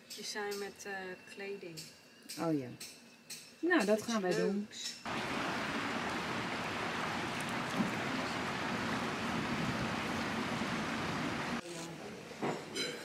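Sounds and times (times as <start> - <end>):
stream rushing over stones: 5.1 - 11.6.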